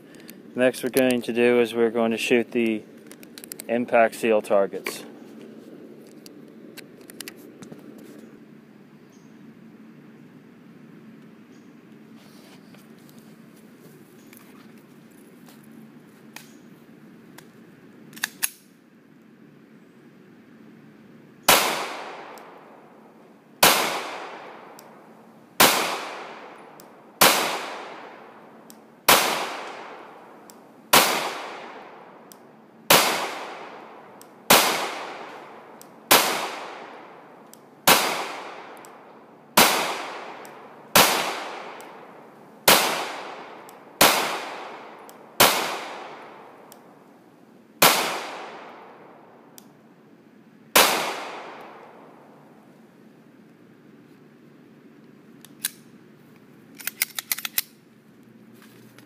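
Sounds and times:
pistol shots with echo: 21.5s - 22.8s, 23.6s - 25.0s, 25.6s - 30.3s, 30.9s - 32.2s, 32.9s - 39.0s, 39.6s - 46.7s, 47.8s - 49.2s, 50.8s - 52.3s.

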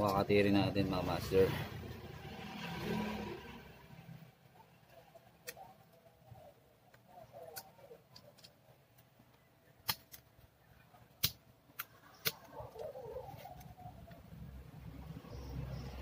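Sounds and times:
plastic clicks and snaps: 6.9s - 10.3s, 11.2s - 12.9s.

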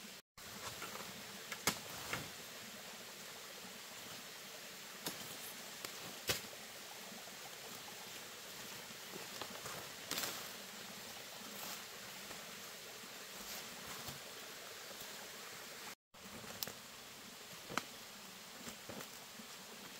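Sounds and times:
forest background hiss: 0.0s - 19.9s
footsteps rustling through vegetation: 9.1s - 15.2s.

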